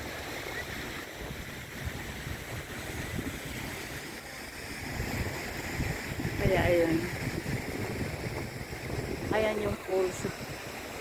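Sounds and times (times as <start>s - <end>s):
sea water rushing on rocks: 0.0s - 11.0s
wind buffeting microphone: 0.0s - 11.0s.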